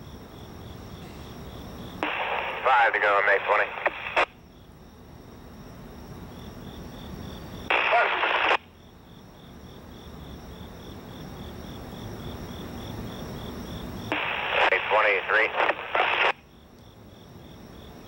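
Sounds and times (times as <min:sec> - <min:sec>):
insects chirping: 0:00.0 - 0:18.0
scanner radio chatter: 0:02.0 - 0:04.4, 0:07.7 - 0:08.7, 0:14.1 - 0:16.4.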